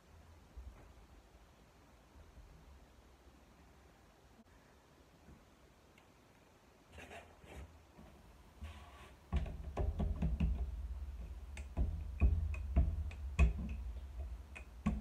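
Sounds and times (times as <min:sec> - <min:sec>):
rolling pin knocking on board: 0:09.3 - 0:15.0.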